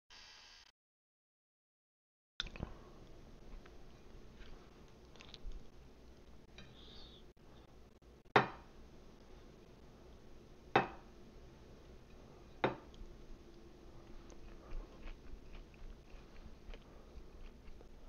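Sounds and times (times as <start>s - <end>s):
glass dish knocking and clinking: 8.4s - 8.6s, 10.8s - 11.0s.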